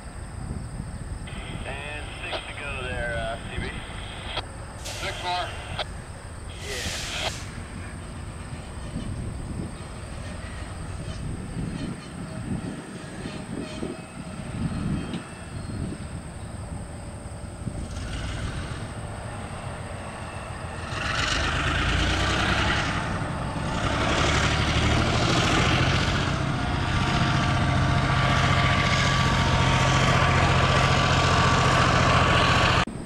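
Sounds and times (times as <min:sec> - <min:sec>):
diesel locomotive engine hum: 0:00.0 - 0:33.0.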